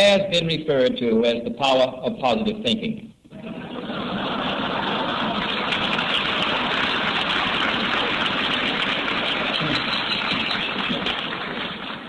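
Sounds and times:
audience applauding: 3.4s - 12.0s.

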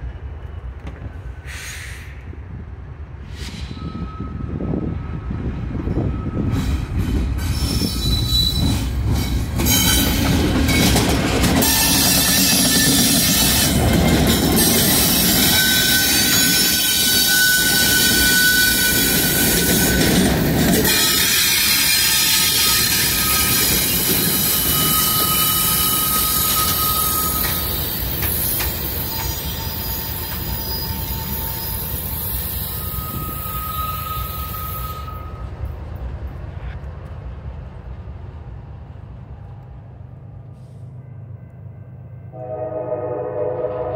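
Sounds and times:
diesel locomotives rumbling past: 0.0s - 43.9s
wheel squeal on rails: 3.3s - 35.6s.

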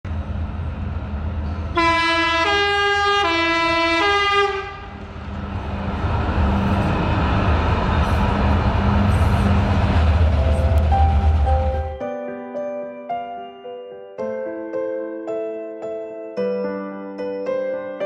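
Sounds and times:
tram rumbling on track: 0.0s - 12.0s
two-tone tram horn: 1.7s - 5.0s.

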